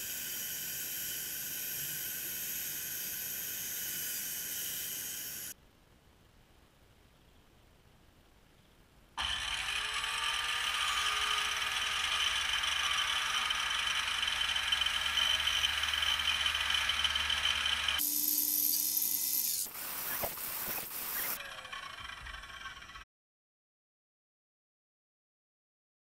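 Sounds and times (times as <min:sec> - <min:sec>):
circular saw cutting wood: 0:00.0 - 0:05.6, 0:09.2 - 0:23.0.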